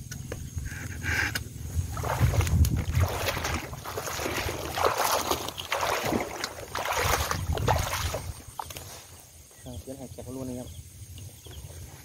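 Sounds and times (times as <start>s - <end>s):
rain jacket and leaves rustling: 1.7s - 9.6s.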